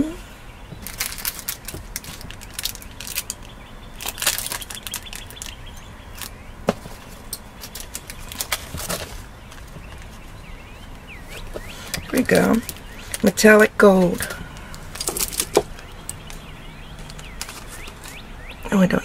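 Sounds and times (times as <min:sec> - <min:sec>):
plastic bag crinkling: 0:00.8 - 0:06.4, 0:07.0 - 0:10.1, 0:14.2 - 0:16.4, 0:17.0 - 0:18.2.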